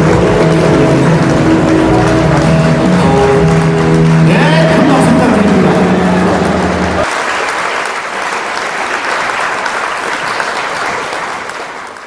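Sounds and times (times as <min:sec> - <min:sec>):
music: 0:00.0 - 0:07.1
large audience applauding: 0:00.0 - 0:12.0.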